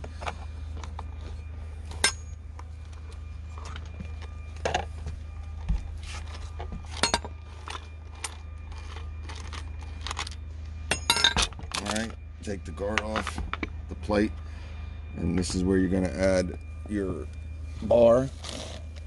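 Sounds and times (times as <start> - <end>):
low hum: 0.0 - 19.0.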